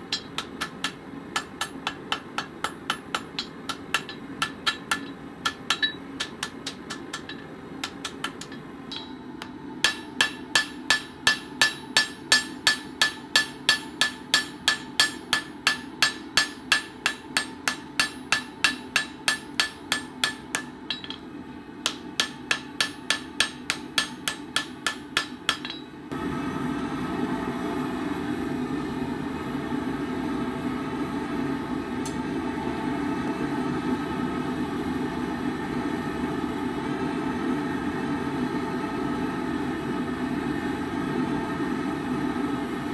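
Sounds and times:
gas forge roaring: 0.0s - 42.9s
hammer ringing on anvil: 0.1s - 26.0s.

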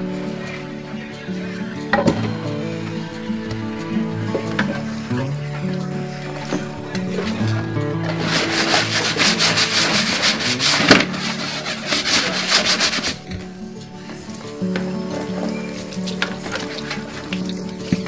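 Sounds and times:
sponge scrubbing cutting board: 8.1s - 13.2s.

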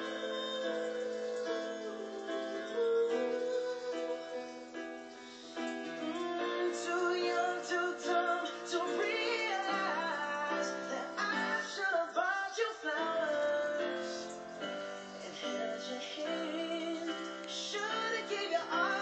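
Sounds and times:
instrumental accompaniment: 0.0s - 19.0s
woman singing: 15.2s - 19.0s.

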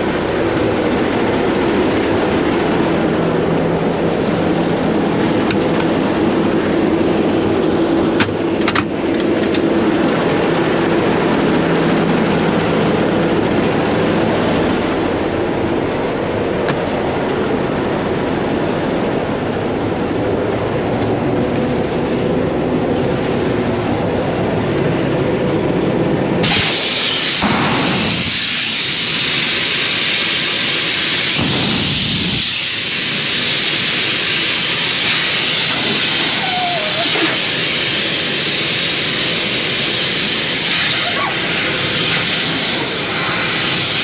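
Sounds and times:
air brakes hissing: 26.4s - 44.0s.

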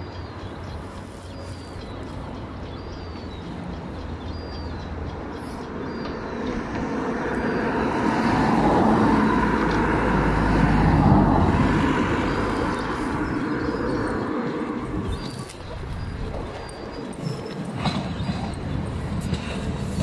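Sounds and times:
rail rumble: 0.0s - 20.0s.

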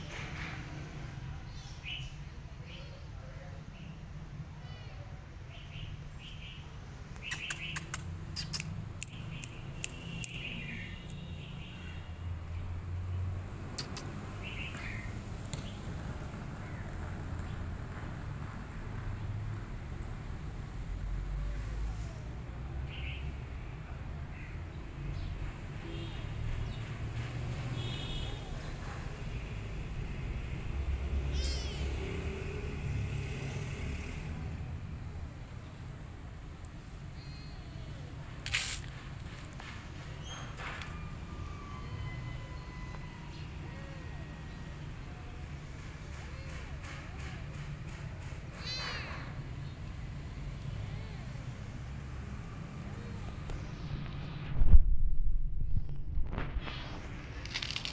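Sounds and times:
small birds chirping: 4.7s - 18.0s, 31.2s - 32.0s, 48.5s - 51.2s
steady low rumble: 53.3s - 57.9s.

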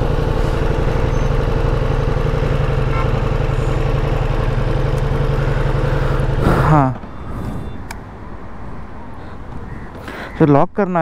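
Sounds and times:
motorcycle engine running: 0.0s - 8.4s.

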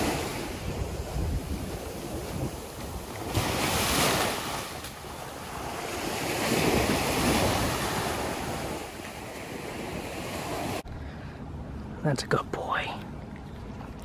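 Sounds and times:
surf washing up a beach: 0.0s - 10.8s
wind buffeting microphone: 0.0s - 10.9s.

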